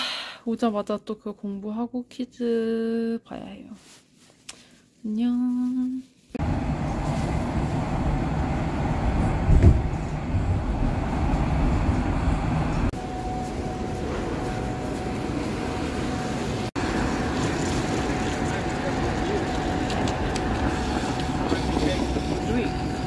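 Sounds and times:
city street hum: 5.3s - 23.0s
train rumble from inside: 6.4s - 23.0s.

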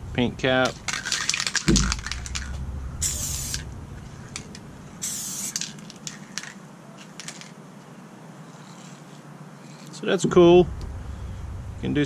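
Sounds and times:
spray paint hissing bursts: 0.8s - 7.5s.

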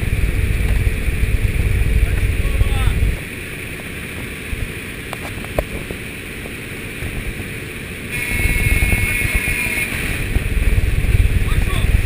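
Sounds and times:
propeller plane engine: 0.0s - 12.0s
wind rushing: 0.0s - 12.0s.

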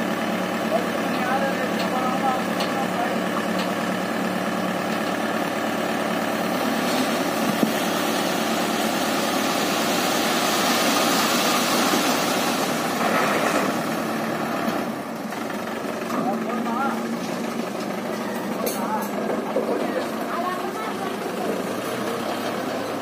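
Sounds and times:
tractor diesel engine running: 0.0s - 23.0s
soil sliding off trailer: 6.2s - 15.2s.

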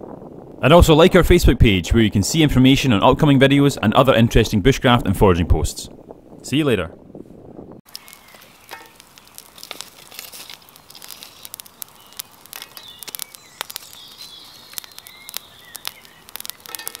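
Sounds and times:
campfire crackling and popping: 0.0s - 0.7s, 7.5s - 17.0s
faint bird calls: 10.7s - 17.0s.

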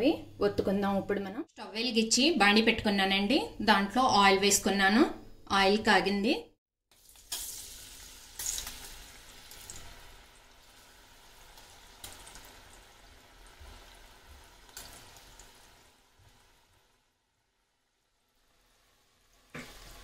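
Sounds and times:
dough sizzling in hot oil: 6.9s - 20.0s.

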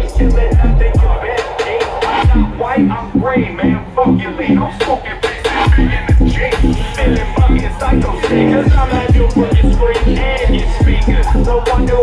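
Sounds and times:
loud hip hop music: 0.0s - 12.0s
deep kick drum: 0.1s - 1.2s, 2.2s - 2.5s, 5.7s - 12.0s.

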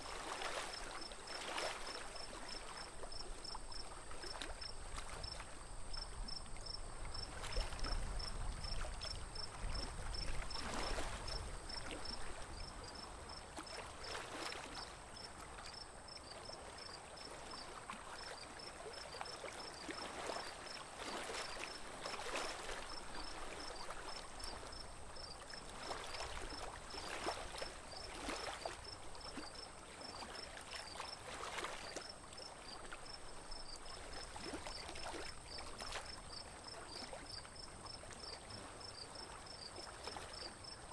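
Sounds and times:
lake water splashing around boat: 0.0s - 40.9s
insect chirping: 31.0s - 36.4s.

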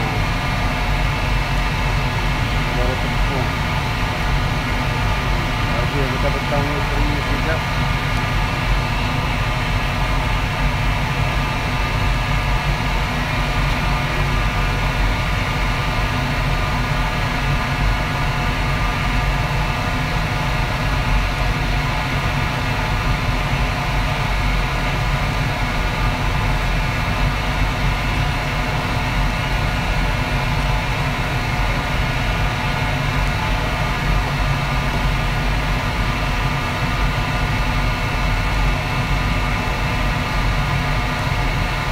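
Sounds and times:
constant tonal hum: 0.0s - 17.1s
wok station mechanical roar: 0.0s - 41.9s.

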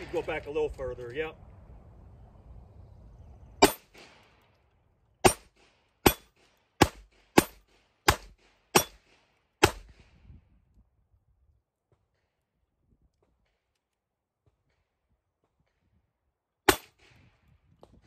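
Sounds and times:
pistol shots: 3.6s - 4.4s, 5.2s - 10.0s, 16.7s - 17.1s.

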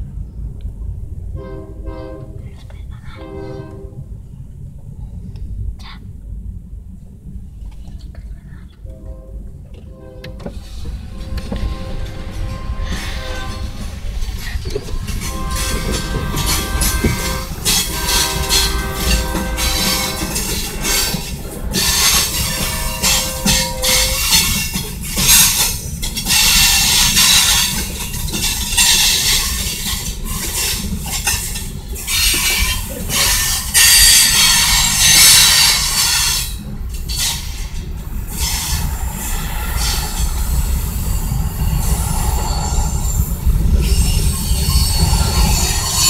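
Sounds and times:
freight train rumbling past: 0.0s - 46.0s
steel wheels squealing on rails: 8.7s - 46.0s.

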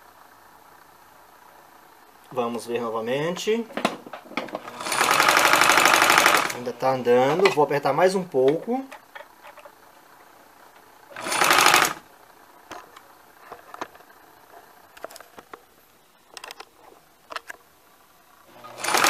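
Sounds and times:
sewing machine stitching: 4.5s - 6.7s, 11.1s - 12.0s, 18.5s - 19.0s.

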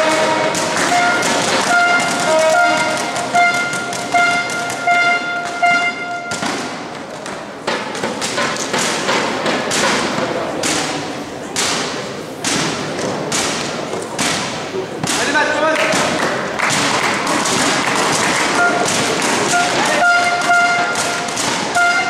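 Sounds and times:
held horn-like tone: 0.0s - 6.5s, 18.5s - 22.0s
sharp knocks and thuds: 0.0s - 11.0s, 11.6s - 21.8s.

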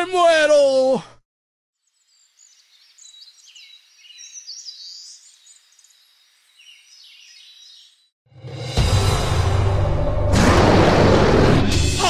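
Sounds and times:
small birds chirping: 1.8s - 8.1s.

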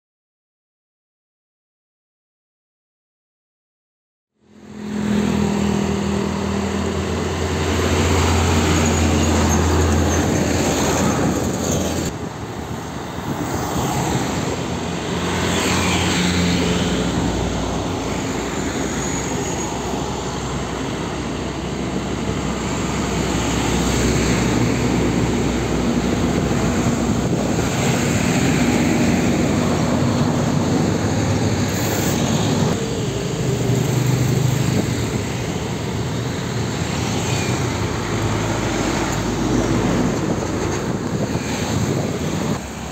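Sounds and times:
heavy diesel trucks passing: 4.4s - 42.9s
motorbikes passing: 4.4s - 42.9s
tyre and road noise: 4.5s - 42.9s.

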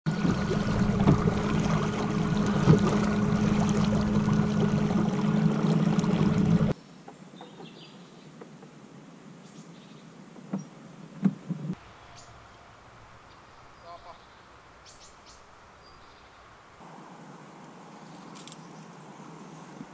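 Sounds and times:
water noise: 0.0s - 6.8s
small boat motor humming: 0.1s - 6.8s.

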